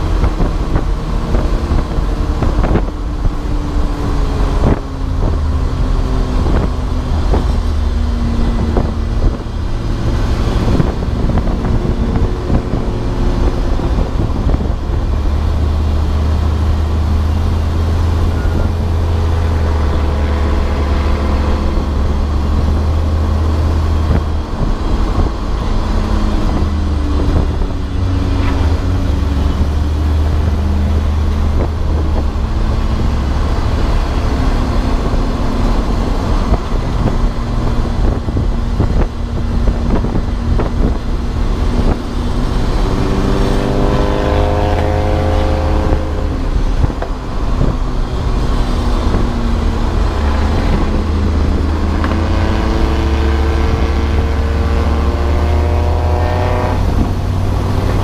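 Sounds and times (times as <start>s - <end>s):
race car engine revving: 0.0s - 58.0s
road and wind noise: 0.0s - 58.0s.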